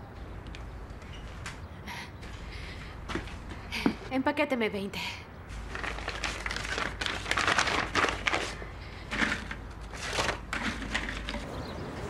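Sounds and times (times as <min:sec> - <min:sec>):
biscuits clattering: 0:05.5 - 0:11.5
paper bag rustling: 0:05.5 - 0:11.5.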